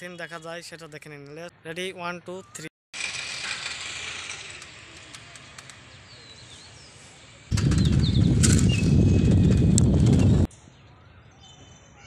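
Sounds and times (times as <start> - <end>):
wind buffeting microphone: 7.5 - 10.5.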